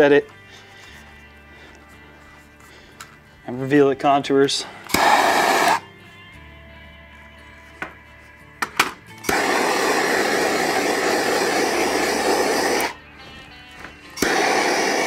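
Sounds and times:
gas torch igniter clicks: 0:04.9 - 0:05.8, 0:08.8 - 0:13.0, 0:14.2 - 0:15.0
gas torch flame hissing: 0:04.9 - 0:05.9, 0:09.2 - 0:13.0, 0:14.2 - 0:15.0.

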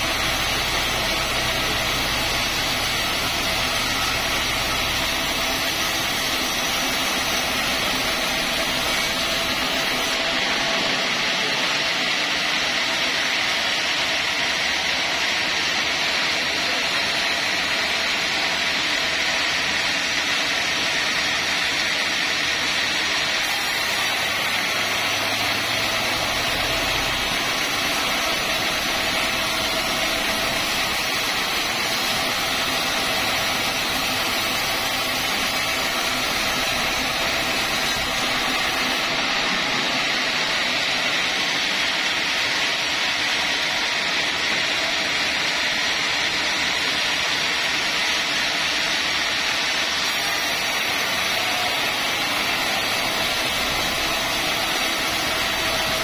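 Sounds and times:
band saw cutting log: 0:00.0 - 0:10.8, 0:23.4 - 0:41.7, 0:49.9 - 0:56.0.

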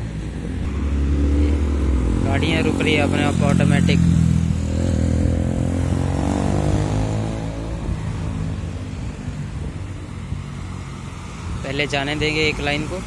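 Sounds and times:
cars and van driving past: 0:00.0 - 0:13.0.

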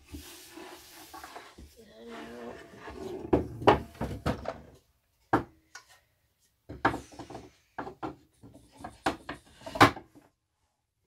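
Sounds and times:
wooden knocks and clatters: 0:03.0 - 0:05.6, 0:06.7 - 0:10.3.

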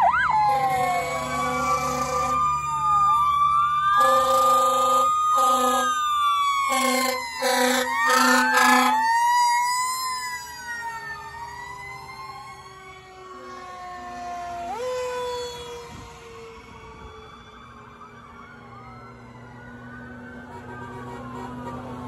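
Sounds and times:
sirens wailing: 0:00.0 - 0:22.0
fire truck air horn blasts: 0:00.5 - 0:02.5, 0:03.9 - 0:09.1, 0:20.4 - 0:22.0.

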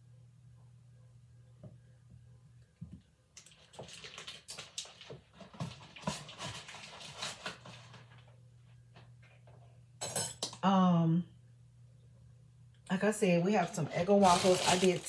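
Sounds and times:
low steady hum: 0:00.0 - 0:15.0
plastic wrapper rustling: 0:03.4 - 0:08.3, 0:13.6 - 0:15.0.

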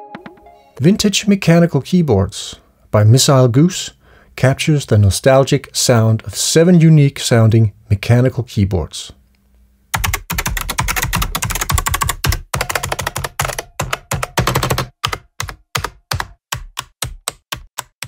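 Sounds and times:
mechanical keyboard typing: 0:10.0 - 0:18.0.

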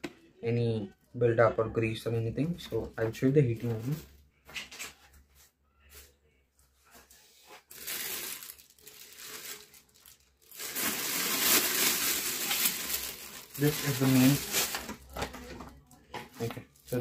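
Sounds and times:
plastic bag crinkling: 0:07.7 - 0:15.6.

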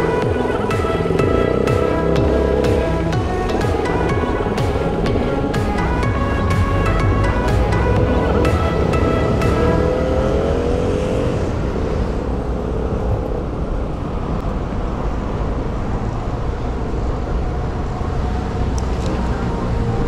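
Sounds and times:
music track: 0:00.0 - 0:11.9
road traffic: 0:00.0 - 0:20.0.

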